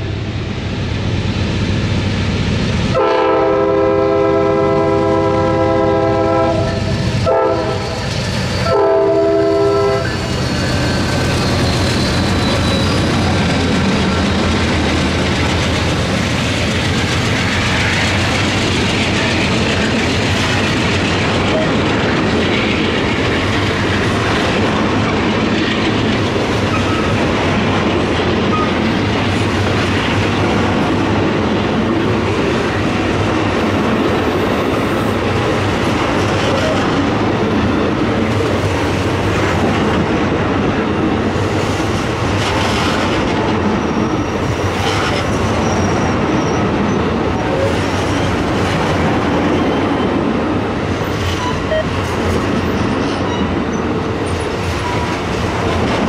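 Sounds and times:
train wheels rumbling on rails: 0:00.0 - 0:56.0
faint high squeal: 0:10.0 - 0:13.3.

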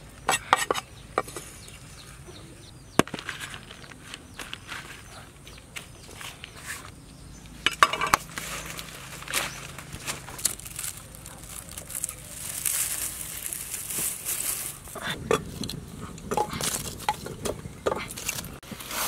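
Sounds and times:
straw rustling and crackling in fire: 0:07.7 - 0:19.0.

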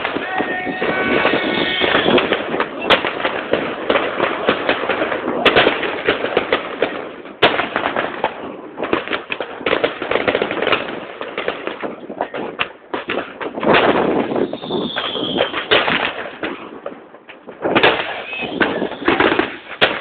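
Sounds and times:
fireworks and firecrackers crackling: 0:00.0 - 0:20.0.

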